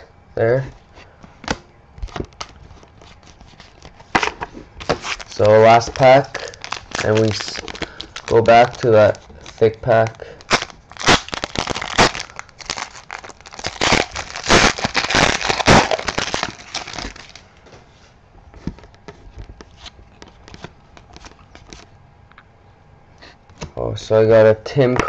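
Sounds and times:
wrapper tearing and crinkling: 2.0s - 17.6s.

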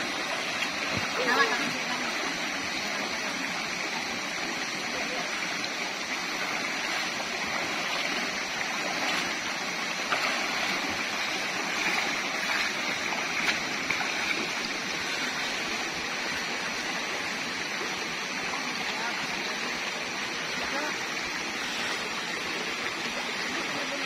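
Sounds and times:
stream rushing over stones: 0.0s - 24.0s
feet splashing in water: 6.2s - 16.2s.

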